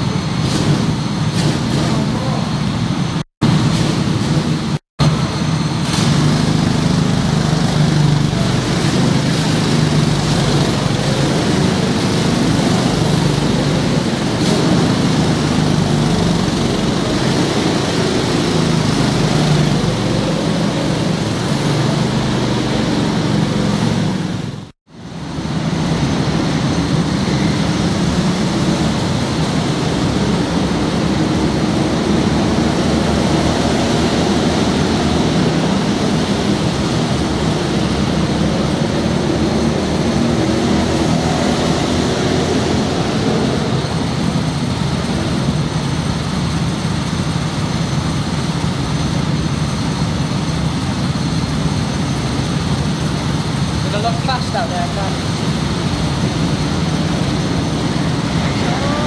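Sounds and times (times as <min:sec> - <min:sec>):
go-kart engines revving: 0:00.0 - 0:59.0.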